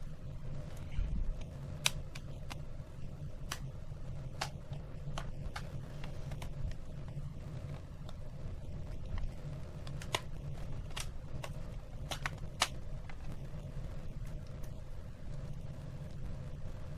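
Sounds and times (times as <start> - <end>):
steady low hum: 0.0 - 16.9
plastic clips popping loose: 9.0 - 13.2.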